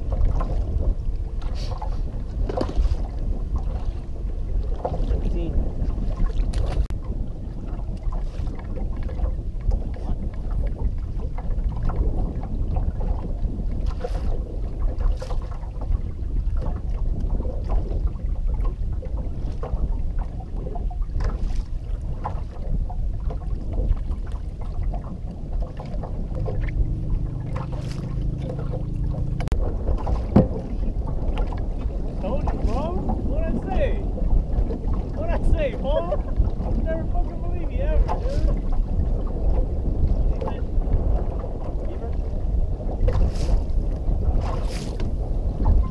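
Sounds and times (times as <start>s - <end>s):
water slapping against boat hull: 0.0s - 45.9s
wind noise on microphone: 0.0s - 45.9s
low steady hum: 24.6s - 42.2s.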